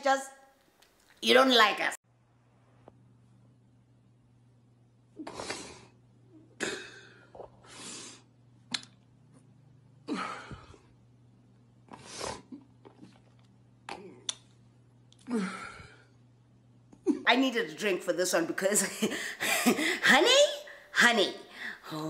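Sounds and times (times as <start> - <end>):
faint steady hum: 2.0 - 22.0
person sobbing: 19.0 - 20.6.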